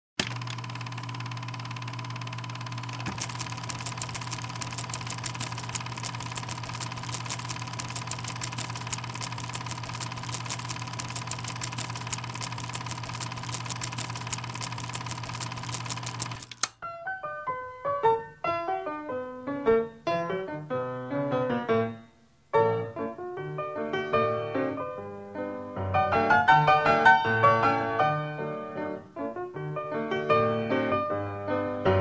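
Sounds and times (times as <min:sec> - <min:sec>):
projector motor hum: 0:00.2 - 0:16.7
rapid clatter of clicks: 0:00.2 - 0:16.8.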